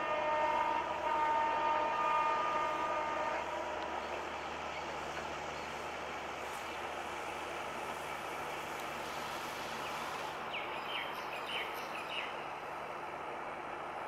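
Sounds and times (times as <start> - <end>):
locomotive air horn chord: 0.0 - 4.0
train running noise: 0.0 - 14.0.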